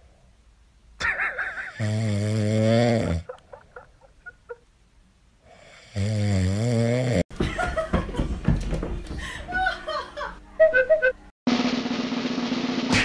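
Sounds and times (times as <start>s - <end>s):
dog snoring: 1.8s - 3.3s, 5.5s - 7.2s.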